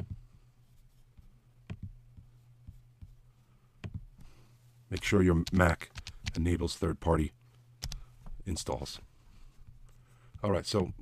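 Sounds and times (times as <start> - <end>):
steady low hum: 0.0 - 11.0
computer mouse clicks: 7.8 - 8.0.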